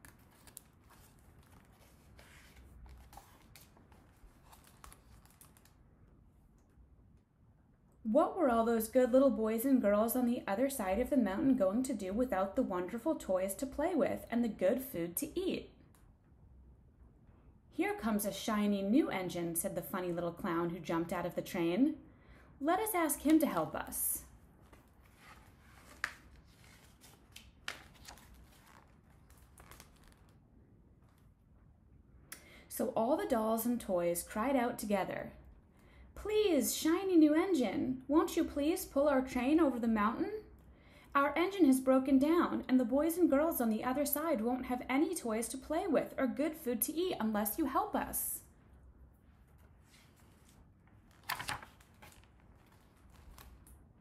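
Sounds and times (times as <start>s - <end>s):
book page turning: 0.0s - 5.8s, 24.6s - 30.4s, 49.3s - 53.9s.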